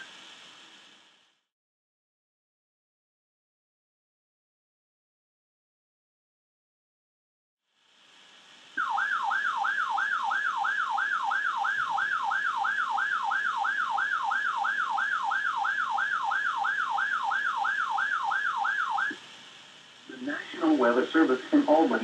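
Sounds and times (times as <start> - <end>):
faint receiver hiss: 0.0 - 1.5, 7.8 - 22.0
warbling siren alarm: 8.8 - 19.2.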